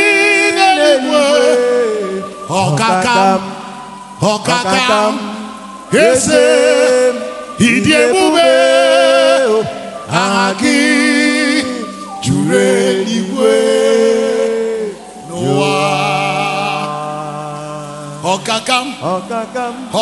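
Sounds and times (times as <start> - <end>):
person singing with vibrato: 0.0 - 20.0.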